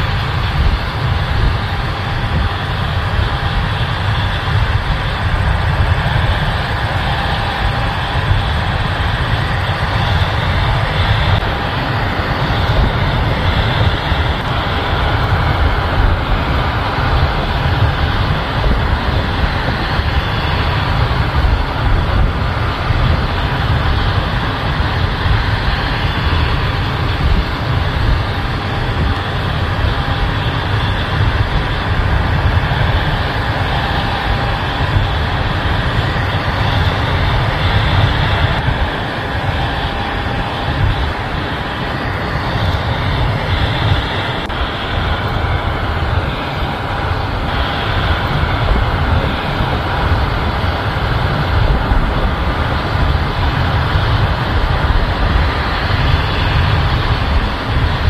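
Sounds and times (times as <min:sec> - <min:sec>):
combine and tractor engines droning: 0:00.0 - 0:58.0.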